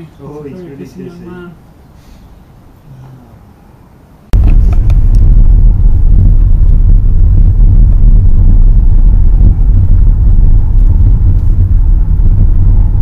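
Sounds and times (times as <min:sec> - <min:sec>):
car engine and road rumble: 0:04.3 - 0:13.0.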